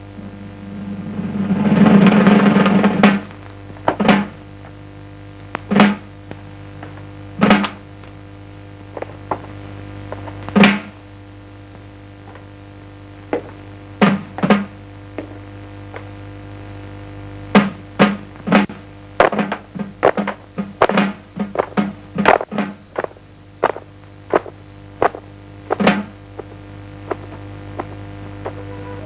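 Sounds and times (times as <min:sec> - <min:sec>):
faint low hum: 0:00.0 - 0:29.0
low drum strikes: 0:00.2 - 0:04.4.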